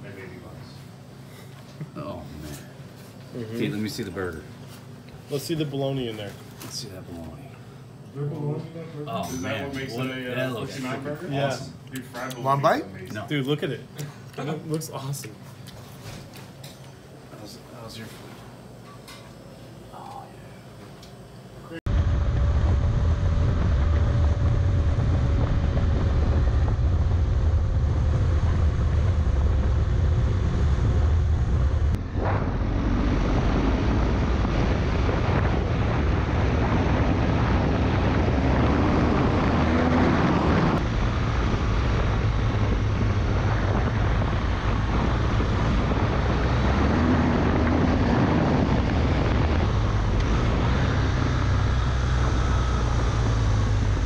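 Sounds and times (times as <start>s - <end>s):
motorcycle engine: 21.9s - 54.0s
wind rush on microphone: 21.9s - 54.0s.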